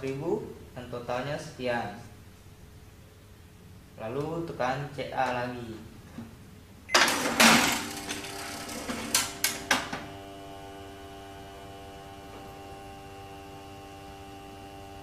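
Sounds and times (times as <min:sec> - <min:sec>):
cash register rattling burst: 0:06.9 - 0:09.9
thermal printer whirring: 0:06.9 - 0:15.0.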